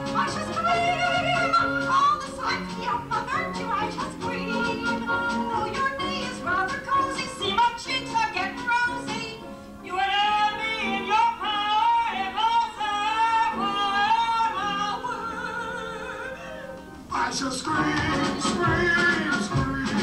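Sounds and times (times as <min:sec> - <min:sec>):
live musical accompaniment: 0:00.0 - 0:20.0.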